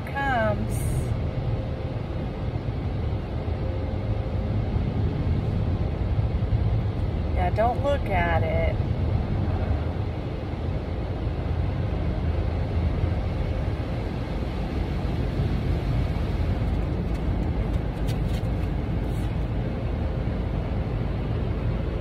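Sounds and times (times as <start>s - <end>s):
car wash water spray and machinery: 9.1s - 22.0s.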